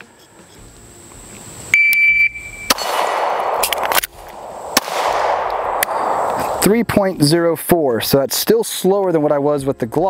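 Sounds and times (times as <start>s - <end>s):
shot timer beep: 1.7s - 2.7s
pistol shot with echo: 2.6s - 6.7s
magazine reload clicks: 2.7s - 6.4s.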